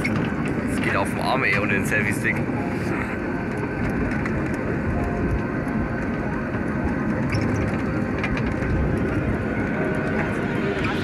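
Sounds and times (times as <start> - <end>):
monorail rumbling: 0.0 - 11.0
wind buffeting microphone: 2.3 - 11.0.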